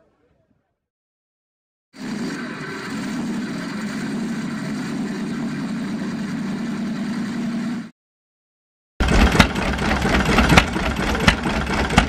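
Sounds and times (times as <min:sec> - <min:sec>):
engine idling: 0:02.0 - 0:07.9, 0:09.0 - 0:12.0.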